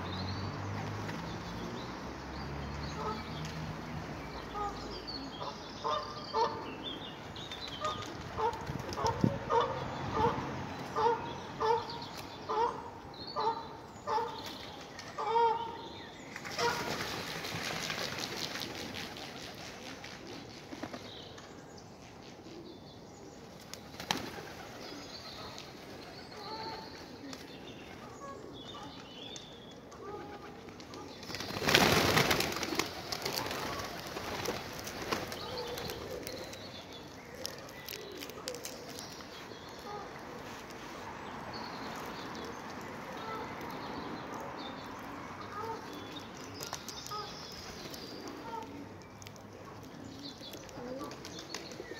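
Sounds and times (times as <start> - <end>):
pigeons flapping wings: 16.4 - 21.1, 23.8 - 24.9, 30.3 - 36.4
pigeons cooing: 30.0 - 40.5, 45.0 - 51.9.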